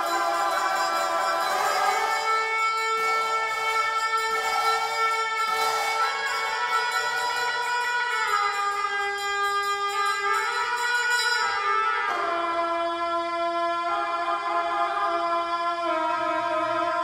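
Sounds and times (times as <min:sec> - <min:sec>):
double-reed horns playing: 0:00.0 - 0:07.4.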